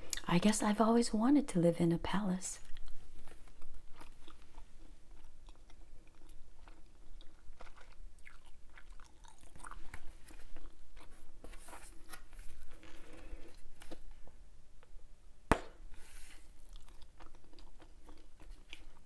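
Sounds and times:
gum chewing: 2.6s - 11.3s, 16.6s - 19.0s.

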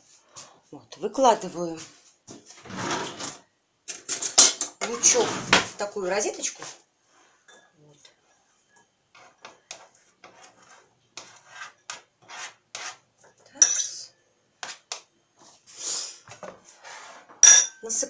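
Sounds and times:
knife scraping cutting board: 9.2s - 13.0s.

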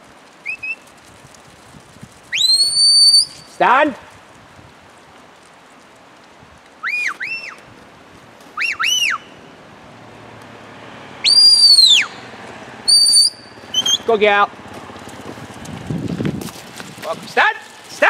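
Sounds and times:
shepherd whistling commands: 2.4s - 3.6s, 8.6s - 9.3s, 11.2s - 12.2s, 12.9s - 14.2s.

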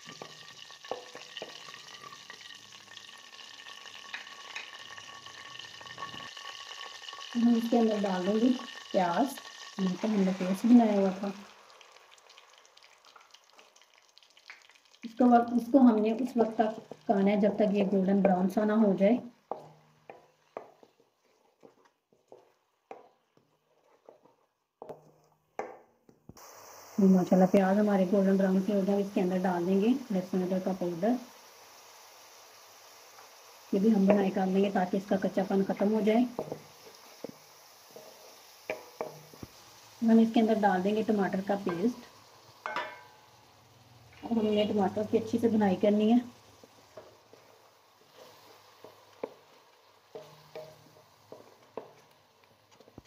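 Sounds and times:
spices sizzling in hot oil: 0.0s - 53.0s
wooden spatula scraping a pan: 15.9s - 25.7s, 33.8s - 39.5s, 44.2s - 53.0s.

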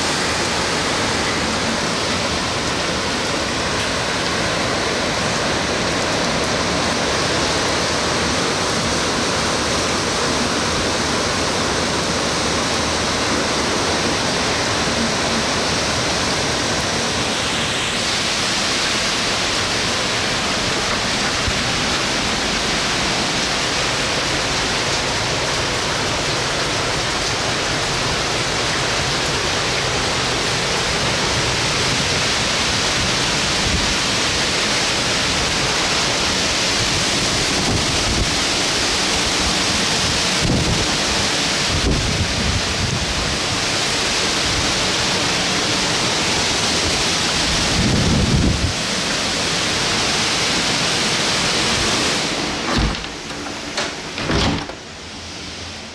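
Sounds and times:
heavy rain: 0.0s - 55.9s
strong wind: 27.1s - 55.9s.

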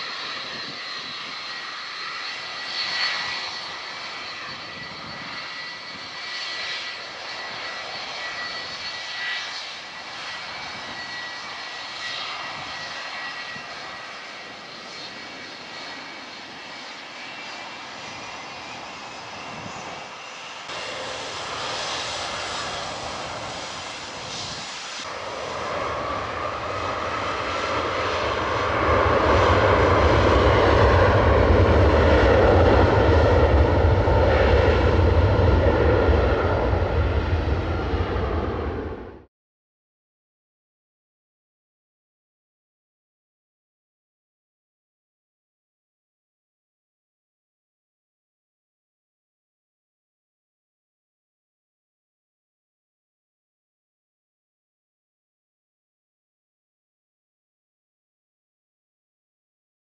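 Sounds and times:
jet engines roaring at takeoff: 0.0s - 39.3s
jet engines whining: 0.0s - 39.3s.

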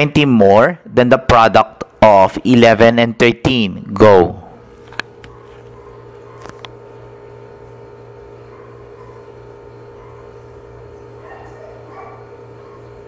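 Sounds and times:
steady electrical hum: 0.0s - 13.0s.

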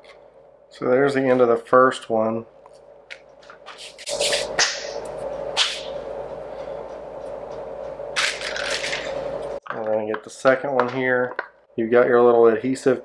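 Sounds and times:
steady hum: 0.0s - 13.0s
packaging crinkling: 8.2s - 9.2s.

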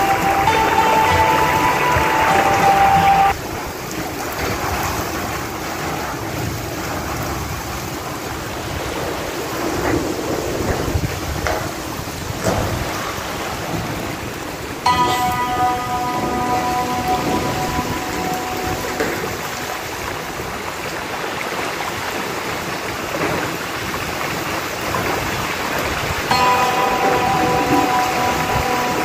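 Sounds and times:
background music: 0.0s - 3.4s, 14.9s - 20.3s, 26.3s - 29.0s
heavy rain pouring: 0.0s - 29.0s
wind: 0.0s - 29.0s.

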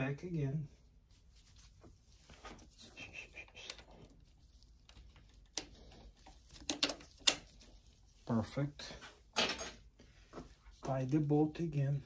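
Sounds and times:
quiet rustles: 0.8s - 9.3s.

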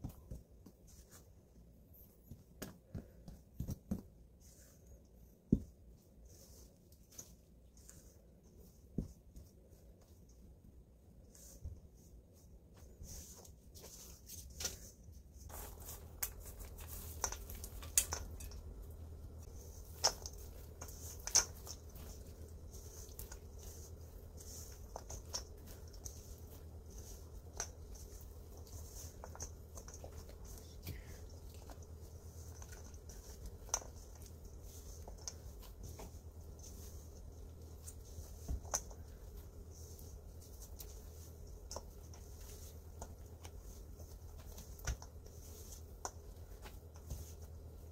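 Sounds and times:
faint low hum: 0.0s - 47.9s.

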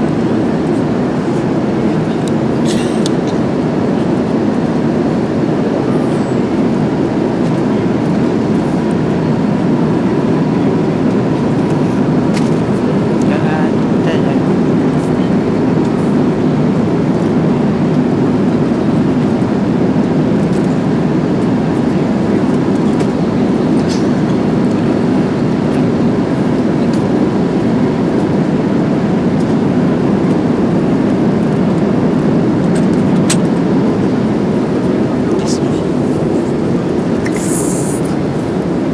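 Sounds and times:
airliner cabin engine hum: 0.0s - 38.9s.

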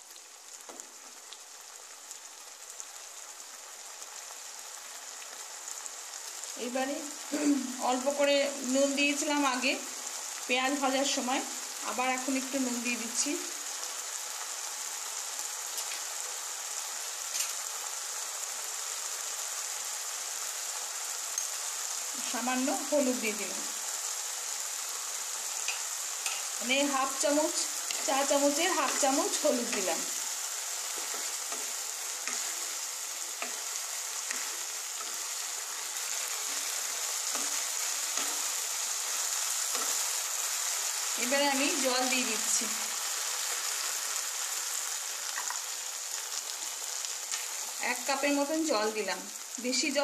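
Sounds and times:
paste sizzling in oil: 0.0s - 50.0s
spatula scraping and tapping pan: 25.6s - 26.5s.

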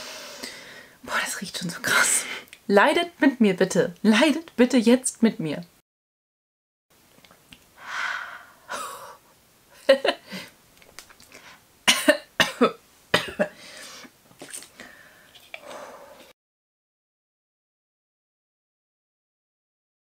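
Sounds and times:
woman exhaling hard: 7.8s - 9.2s
woman coughing: 11.9s - 13.6s.

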